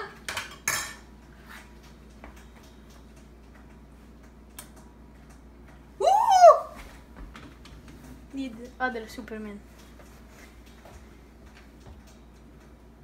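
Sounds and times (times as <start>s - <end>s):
boy exclaiming: 6.0s - 6.8s.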